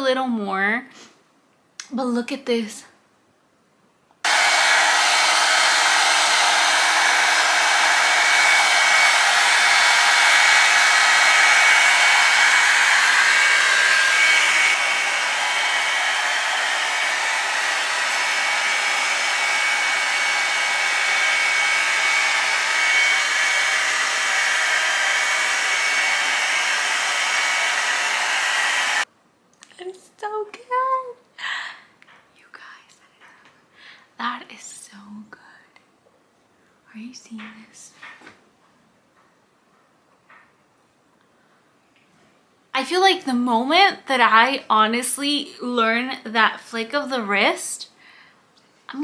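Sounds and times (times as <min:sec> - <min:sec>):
hot-air brush dryer blowing: 0:04.2 - 0:29.1.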